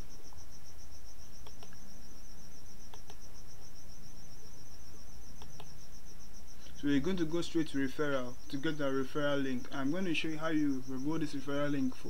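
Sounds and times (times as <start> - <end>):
insect chirping: 0.0 - 12.0
faint clicks: 1.4 - 1.8, 2.9 - 3.2, 5.4 - 5.8.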